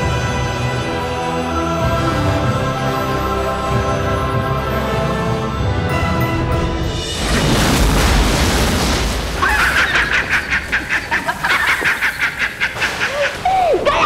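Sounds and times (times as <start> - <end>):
rhythmic cackling laugh: 9.4 - 13.5.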